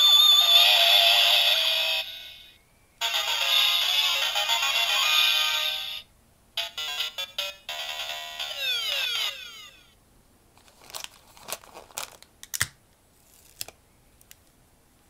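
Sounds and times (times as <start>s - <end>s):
toy electronic beeps and jingle: 0.0s - 6.0s, 6.6s - 9.9s.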